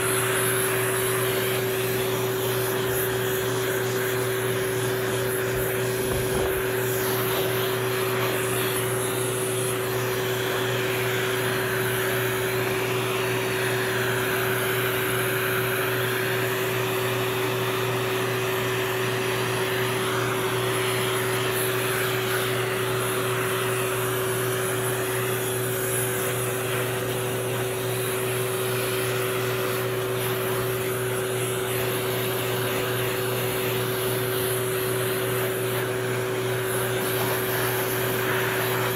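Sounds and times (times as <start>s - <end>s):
air rushing from nozzle: 0.0s - 16.1s
grooming dryer motor whine: 0.0s - 38.9s.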